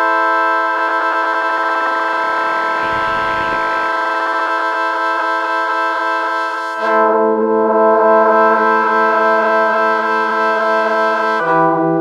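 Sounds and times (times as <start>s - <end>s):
synthesizer chord wobbling: 2.6s - 4.3s.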